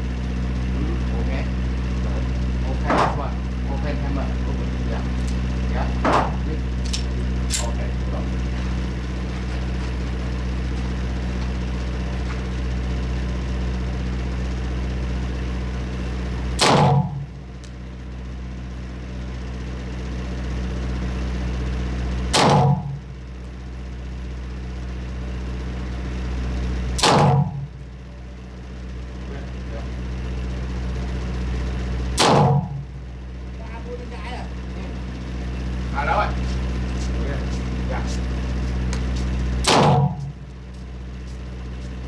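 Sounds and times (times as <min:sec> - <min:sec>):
steady low hum: 0:00.0 - 0:42.0
gunshots: 0:16.6 - 0:17.1, 0:27.0 - 0:27.5, 0:32.2 - 0:32.6, 0:39.6 - 0:40.2.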